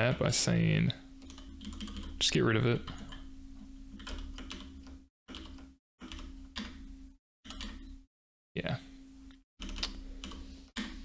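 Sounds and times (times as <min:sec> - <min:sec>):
steady low hum: 0:00.0 - 0:05.1.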